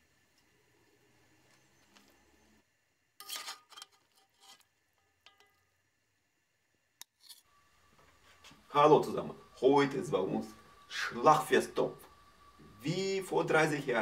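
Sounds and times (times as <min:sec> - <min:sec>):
metal ladle scraping cast-iron pot: 0:03.2 - 0:05.6, 0:07.1 - 0:07.5.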